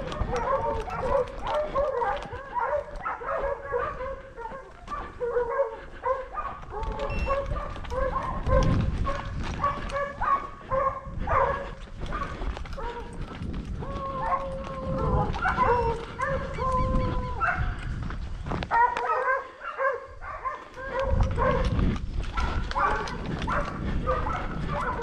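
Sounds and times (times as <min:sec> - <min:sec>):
dogs barking and yelping: 0:00.0 - 0:25.0.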